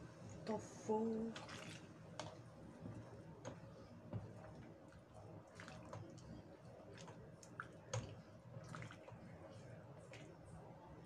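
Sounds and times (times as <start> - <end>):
liquid sloshing: 1.2 - 3.6, 4.2 - 10.3.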